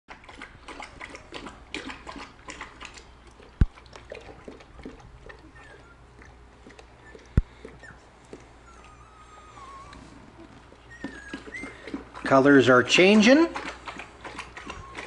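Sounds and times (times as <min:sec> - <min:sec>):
puppies suckling: 0:00.1 - 0:15.0
puppy squeaks: 0:05.4 - 0:06.0, 0:07.8 - 0:08.0, 0:08.6 - 0:12.3, 0:14.3 - 0:15.0.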